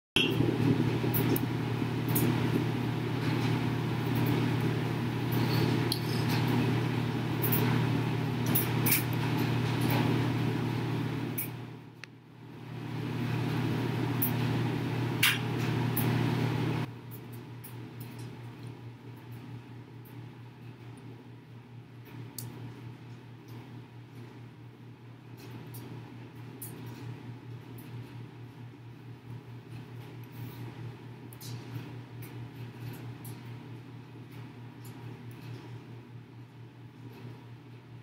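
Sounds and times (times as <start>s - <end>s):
low machine hum: 0.2s - 38.0s.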